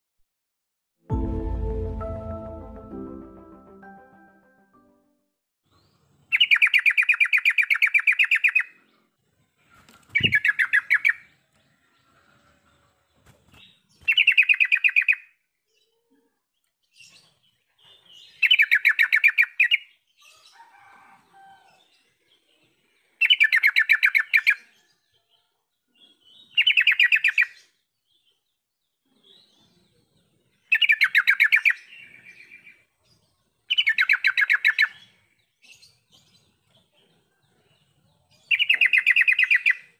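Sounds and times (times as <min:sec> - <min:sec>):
bulbul singing: 0:10.2 - 0:11.3, 0:38.4 - 0:39.9.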